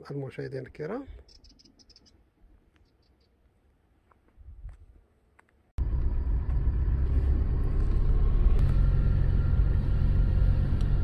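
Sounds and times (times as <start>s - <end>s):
car engine and tyre rumble: 5.8s - 11.0s.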